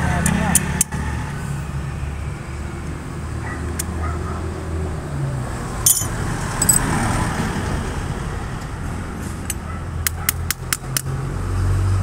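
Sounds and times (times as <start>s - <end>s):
road traffic hum: 0.0s - 12.0s
vehicle passing: 3.1s - 10.0s
hand tools clicking on chain: 5.9s - 6.8s.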